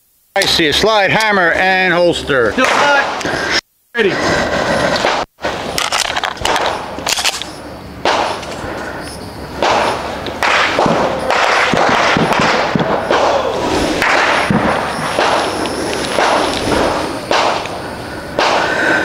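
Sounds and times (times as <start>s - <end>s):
steady rushing noise: 0.4s - 19.0s
gunshots: 2.5s - 3.3s, 4.9s - 8.6s, 9.5s - 19.0s.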